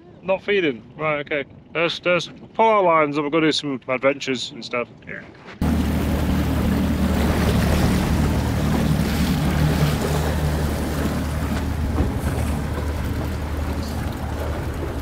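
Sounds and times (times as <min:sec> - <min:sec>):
outboard motor drone: 0:05.6 - 0:15.0
wake water rushing: 0:05.6 - 0:15.0
wind buffeting microphone: 0:05.6 - 0:15.0.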